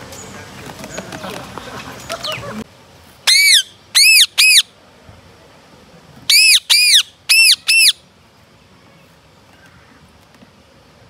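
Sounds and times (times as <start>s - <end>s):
parakeets squawking: 3.3s - 4.7s, 6.3s - 8.0s.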